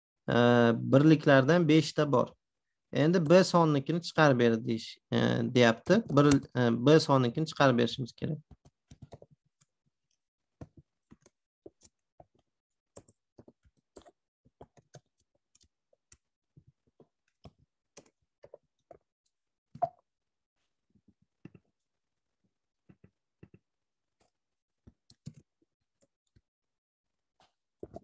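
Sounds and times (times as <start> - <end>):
computer keyboard typing: 8.5 - 9.3, 25.1 - 25.5.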